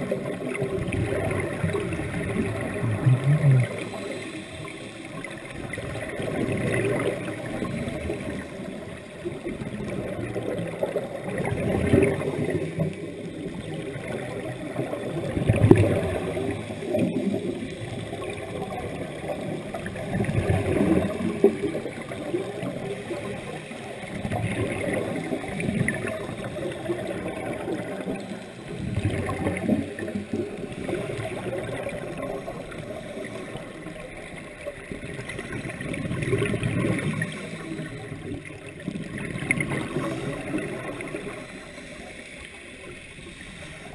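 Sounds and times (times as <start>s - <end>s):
air bubbling underwater: 0.0s - 4.1s.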